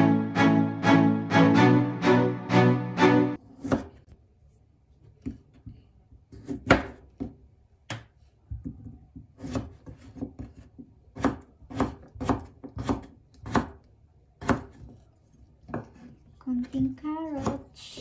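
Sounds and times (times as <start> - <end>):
knife chopping on wooden board: 3.6 - 4.0, 6.3 - 8.0, 9.2 - 13.8, 14.4 - 15.0, 15.6 - 16.1.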